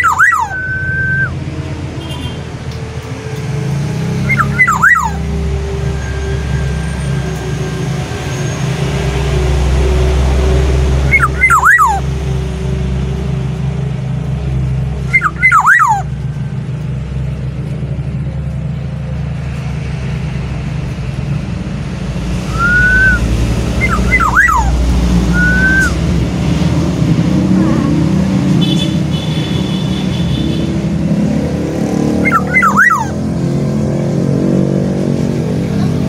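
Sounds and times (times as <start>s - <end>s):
bird fluty whistled calls: 0.0s - 1.4s, 4.2s - 5.3s, 11.1s - 12.0s, 15.0s - 16.1s, 22.4s - 26.0s, 32.2s - 33.2s.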